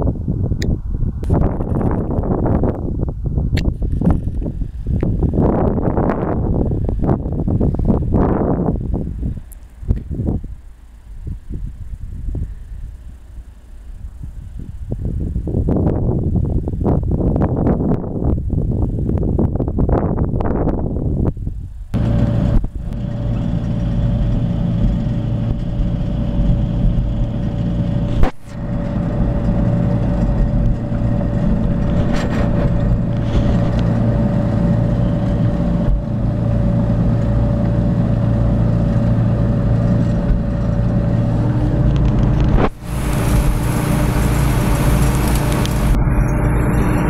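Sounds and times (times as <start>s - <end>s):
tractor diesel engine under load: 22.0s - 47.0s.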